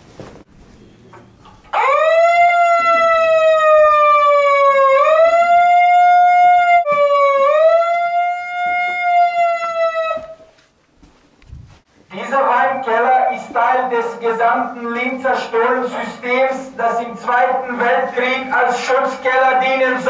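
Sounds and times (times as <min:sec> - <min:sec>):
siren-like wail: 0:01.7 - 0:10.6.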